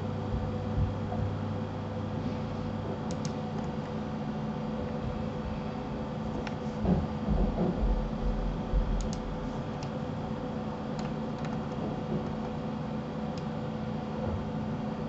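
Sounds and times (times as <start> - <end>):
steady low hum: 0.0 - 15.0
computer keys and mouse clicks: 3.1 - 3.7, 9.0 - 10.0, 11.0 - 12.4
low rumble: 7.3 - 9.6.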